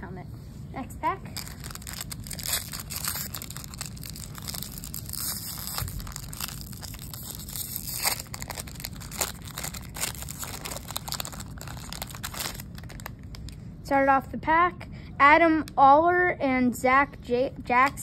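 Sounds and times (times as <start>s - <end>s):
plastic wrapper crinkling and tearing: 1.2s - 13.6s.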